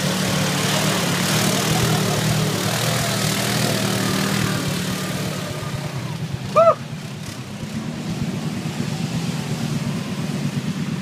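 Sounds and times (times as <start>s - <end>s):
atv engine running: 0.0s - 11.0s
loud pitched call: 6.5s - 6.8s.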